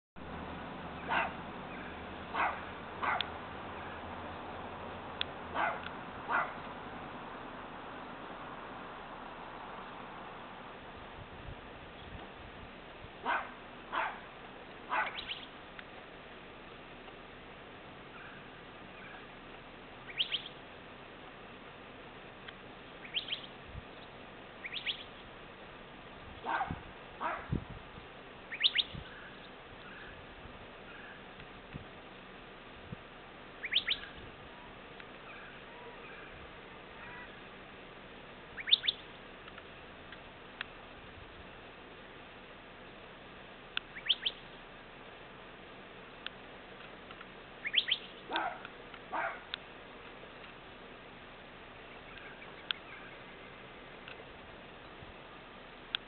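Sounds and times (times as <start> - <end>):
background hiss: 0.2 - 56.0
dog barking: 1.0 - 1.4, 2.3 - 4.0, 5.5 - 6.6, 13.2 - 14.3, 14.9 - 15.3, 26.4 - 27.5, 48.3 - 49.5
small bird chirping: 14.9 - 15.6, 20.0 - 20.6, 23.0 - 25.3, 28.5 - 30.1, 33.6 - 34.2, 38.6 - 39.2, 43.8 - 44.6, 47.6 - 48.5.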